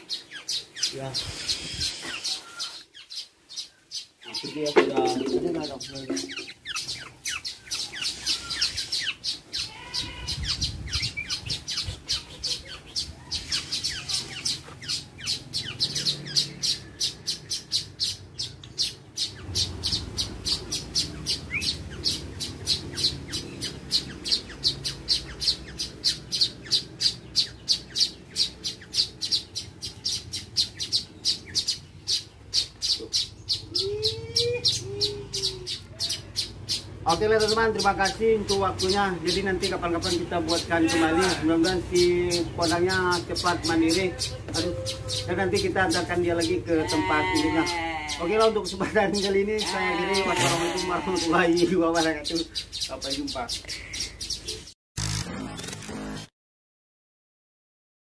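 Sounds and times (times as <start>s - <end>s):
young bird calling sharply: 0.0s - 37.9s, 43.1s - 48.8s, 49.6s - 51.7s.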